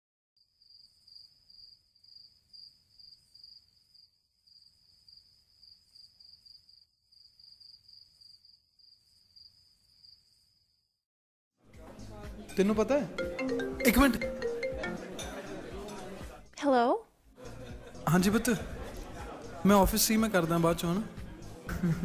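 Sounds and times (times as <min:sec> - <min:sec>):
cricket chirping: 0:00.4 - 0:11.0.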